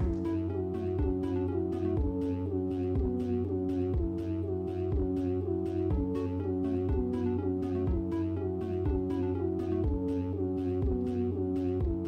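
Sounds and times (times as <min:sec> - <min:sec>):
low thud beat: 0:00.0 - 0:01.2, 0:03.9 - 0:04.2, 0:04.9 - 0:05.2
held chords: 0:00.0 - 0:12.0.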